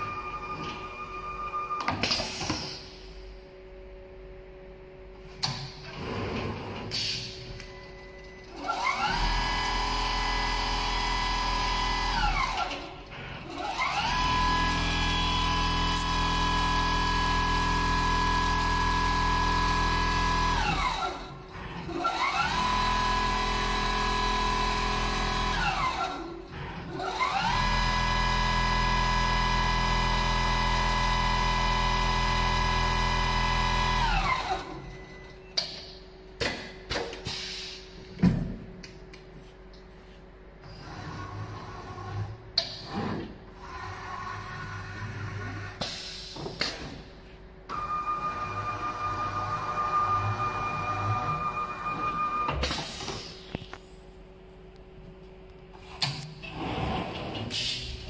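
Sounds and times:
sewing machine motor whine: 8.4s - 35.0s, 47.7s - 52.6s.

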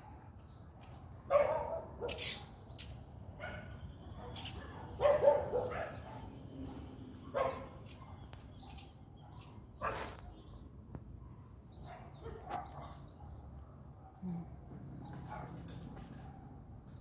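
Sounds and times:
dog barking: 0.8s - 2.5s, 3.4s - 10.2s, 11.2s - 14.2s, 15.0s - 16.6s.

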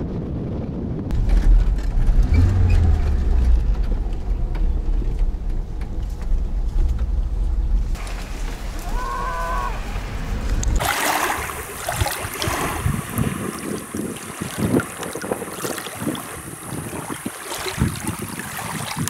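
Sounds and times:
vehicle low rumble: 0.0s - 15.5s
wind buffeting microphone: 0.0s - 19.0s
small waves lapping on shore: 8.0s - 19.0s.

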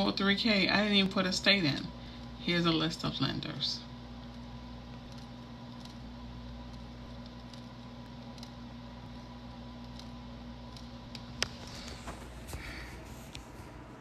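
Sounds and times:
low electrical hum: 0.0s - 14.0s
mouse scroll wheel clicks: 5.1s - 6.0s, 6.6s - 8.6s, 9.8s - 11.5s.

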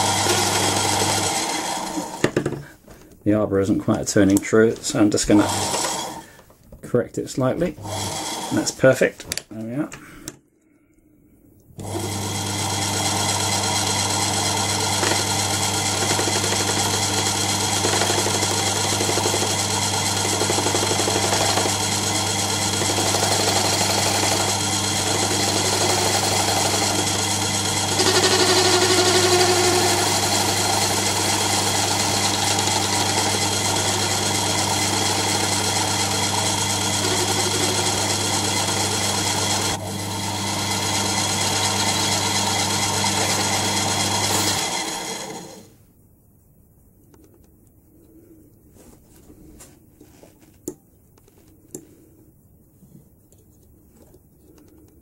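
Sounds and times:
lathe motor hum: 0.0s - 2.6s, 5.4s - 6.2s, 7.8s - 8.7s, 11.8s - 45.7s.

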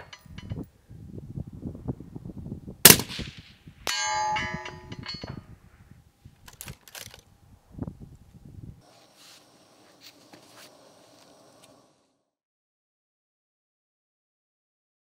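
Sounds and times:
rifle shot: 2.8s - 4.1s
steel target ringing: 3.8s - 5.4s.

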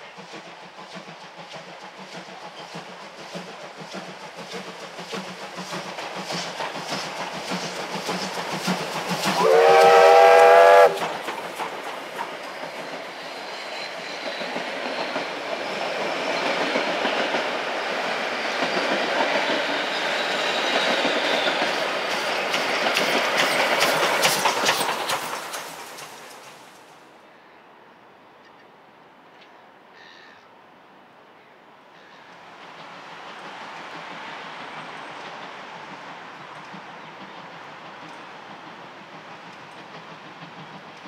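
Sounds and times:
train wheels clacking on rail joints: 0.0s - 26.9s, 32.1s - 41.0s
steam locomotive whistle: 9.3s - 11.2s.

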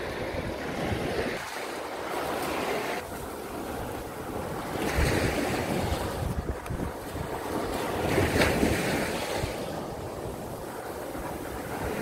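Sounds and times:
small waves breaking on sand: 0.0s - 12.0s
wind buffeting microphone: 0.0s - 12.0s.

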